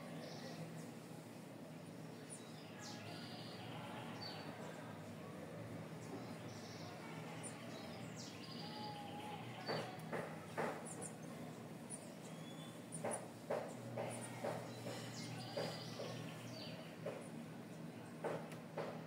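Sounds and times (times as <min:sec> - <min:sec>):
birds chirping: 0:00.0 - 0:04.9, 0:05.7 - 0:18.9
steady background hiss: 0:00.0 - 0:14.4.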